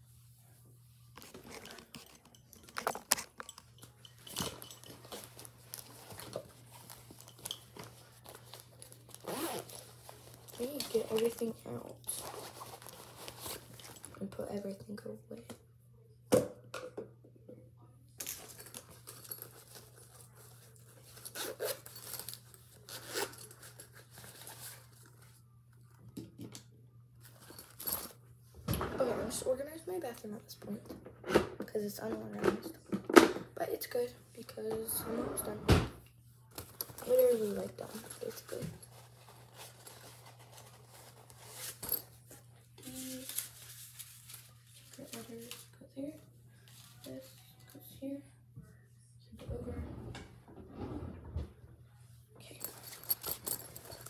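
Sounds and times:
small items rustling and clattering: 1.1s - 14.7s, 18.2s - 26.5s, 27.2s - 29.6s, 36.5s - 47.8s, 52.4s - 54.0s.

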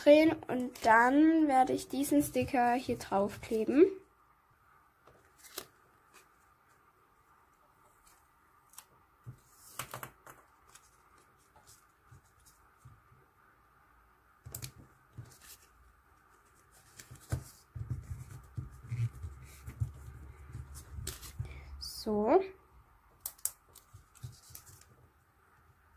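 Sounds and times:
paper sticker rustling: 23.2s - 25.0s.

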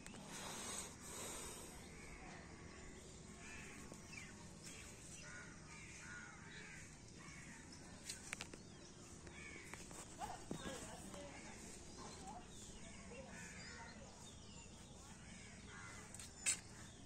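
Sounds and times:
crows cawing: 3.3s - 4.3s, 5.2s - 7.7s, 9.2s - 9.8s.

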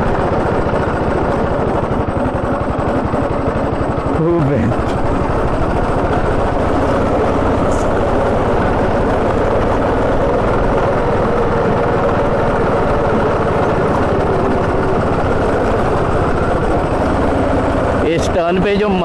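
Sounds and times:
go-kart engine running: 0.0s - 19.0s.

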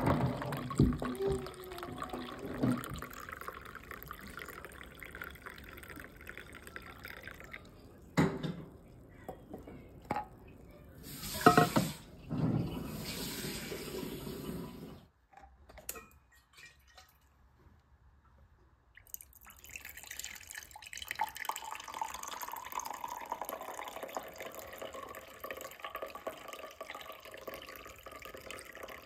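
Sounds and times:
hot drink pouring into mug: 0.0s - 8.4s, 19.0s - 29.0s.

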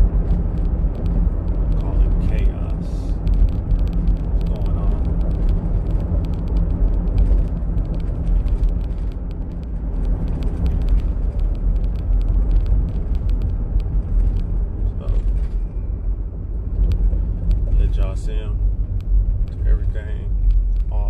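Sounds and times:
truck engine and road rumble: 0.0s - 21.0s.

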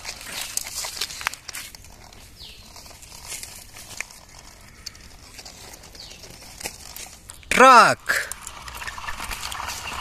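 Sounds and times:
toy bicycle clicking and rolling: 0.0s - 7.4s, 8.1s - 10.0s.

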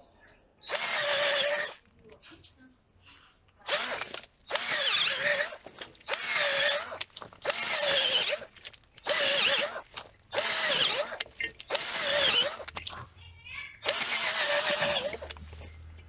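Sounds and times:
cordless drill whining: 0.6s - 1.9s, 3.6s - 12.9s, 13.8s - 15.9s.

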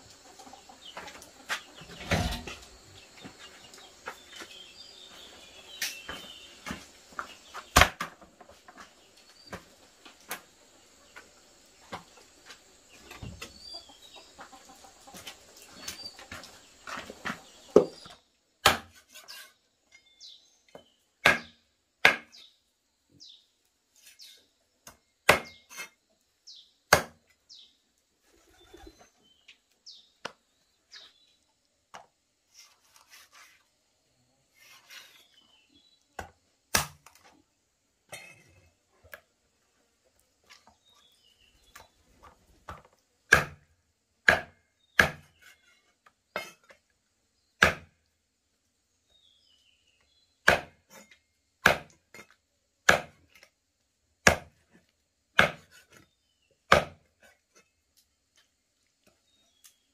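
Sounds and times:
knife chopping chicken on wooden block: 18.6s - 18.9s, 21.2s - 22.3s, 25.3s - 25.6s, 26.9s - 27.2s, 42.7s - 43.6s, 44.3s - 45.3s, 47.6s - 47.9s, 50.4s - 50.8s, 51.6s - 52.0s, 52.9s - 53.2s, 54.2s - 54.6s, 55.4s - 55.8s, 56.7s - 57.0s.

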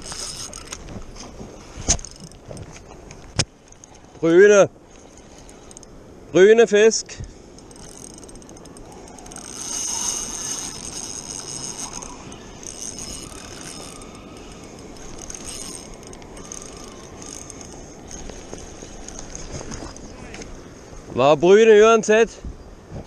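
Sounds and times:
fishing reel whirring and ratcheting: 0.0s - 0.8s, 1.9s - 2.6s, 5.0s - 5.9s, 7.5s - 20.1s.

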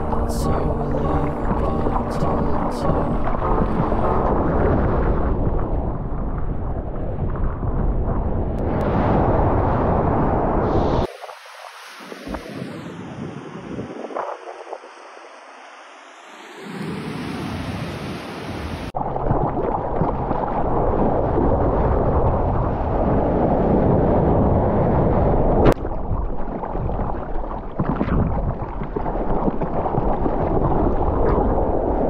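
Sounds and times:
wind buffeting microphone: 0.0s - 11.2s
water rushing and sloshing: 0.0s - 23.2s.

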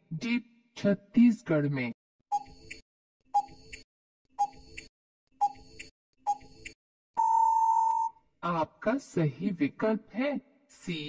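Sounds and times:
long steady beep: 7.2s - 8.1s.

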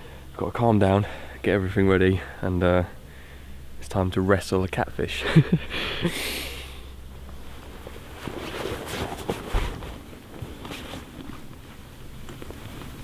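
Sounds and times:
shuffling: 7.2s - 13.0s.

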